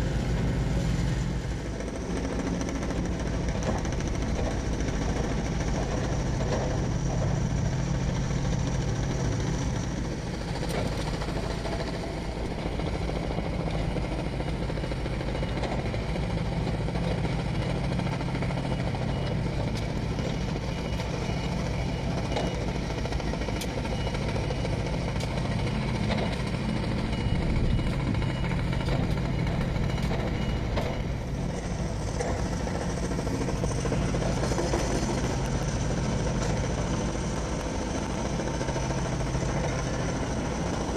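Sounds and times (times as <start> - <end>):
heavy machinery engine droning: 0.0 - 40.9.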